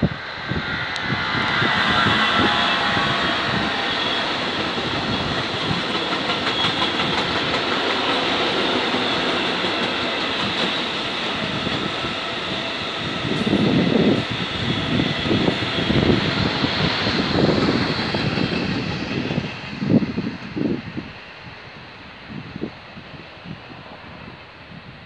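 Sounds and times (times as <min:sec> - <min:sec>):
train wheels rumbling on rail: 0:00.0 - 0:25.0
faint high squeal: 0:00.7 - 0:04.4
clacking over rail joints: 0:04.6 - 0:10.9.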